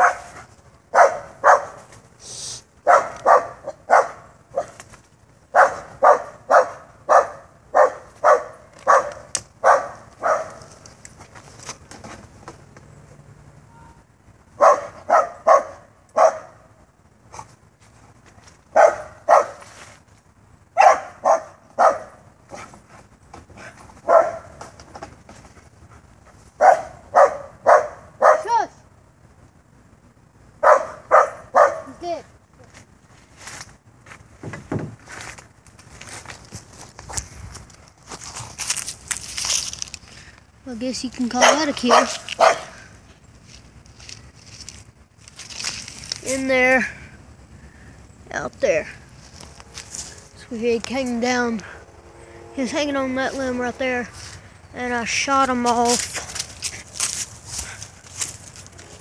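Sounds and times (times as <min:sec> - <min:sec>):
dog barking: 0:00.0 - 0:01.8, 0:02.8 - 0:04.8, 0:05.5 - 0:10.7, 0:14.6 - 0:16.7, 0:18.7 - 0:19.6, 0:20.8 - 0:22.6, 0:24.0 - 0:24.6, 0:26.6 - 0:28.6, 0:30.6 - 0:32.0, 0:41.4 - 0:42.8.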